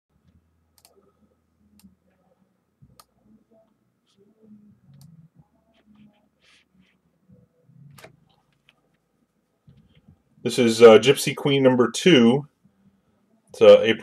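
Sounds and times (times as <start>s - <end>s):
low room hum: 0.1s - 14.0s
computer mouse clicks: 0.8s - 1.0s.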